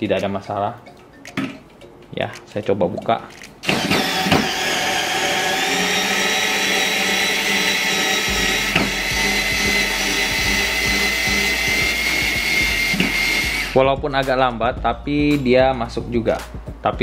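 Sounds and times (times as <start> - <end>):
electric screwdriver motor whine: 3.6 - 13.8.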